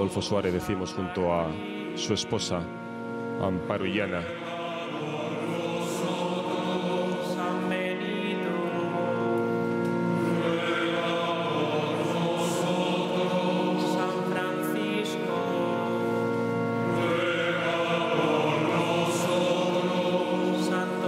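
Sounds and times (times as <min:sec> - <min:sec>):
choir chanting: 0:03.8 - 0:09.4, 0:10.1 - 0:21.0.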